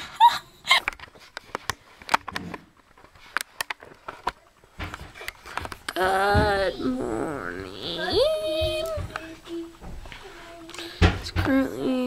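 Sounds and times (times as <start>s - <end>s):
person laughing: 0.0s - 0.9s.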